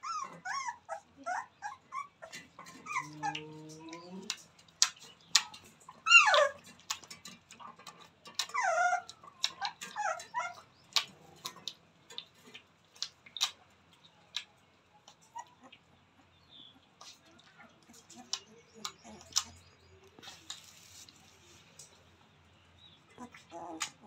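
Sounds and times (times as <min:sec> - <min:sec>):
puppies whimpering and yelping: 0:00.0 - 0:04.3, 0:05.9 - 0:06.7, 0:08.3 - 0:11.3, 0:15.1 - 0:21.8, 0:23.1 - 0:24.0
sharp clicks and ticks: 0:03.0 - 0:05.9.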